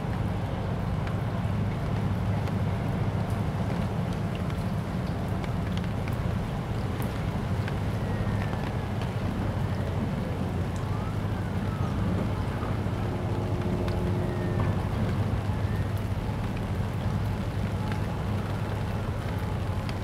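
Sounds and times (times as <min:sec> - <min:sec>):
low engine-like drone: 0:00.0 - 0:20.0.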